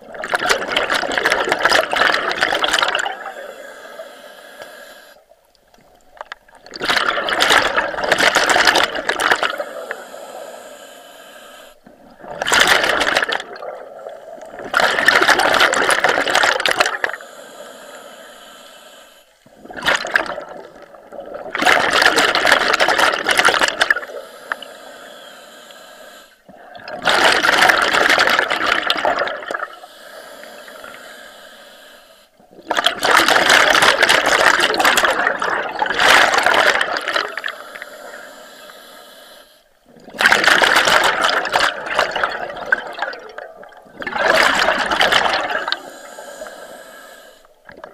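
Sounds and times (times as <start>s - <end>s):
exhaled breath bubbling underwater: 0.0s - 47.9s
soft regulator hiss: 3.2s - 6.2s, 9.5s - 11.9s, 17.0s - 19.5s, 24.0s - 26.5s, 29.7s - 32.5s, 37.2s - 39.9s, 45.6s - 47.7s.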